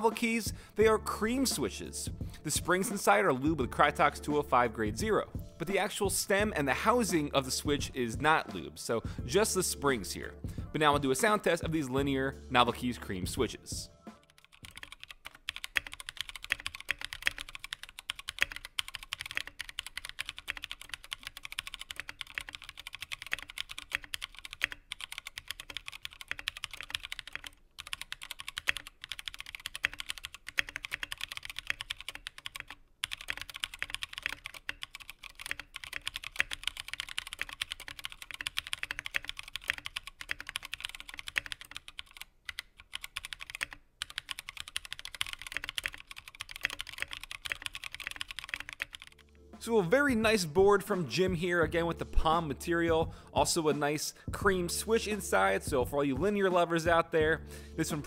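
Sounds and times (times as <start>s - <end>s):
mechanical keyboard typing: 14.2s - 49.2s.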